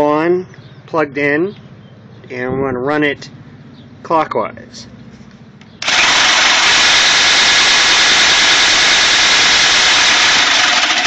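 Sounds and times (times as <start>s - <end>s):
power drill running: 5.8s - 11.0s.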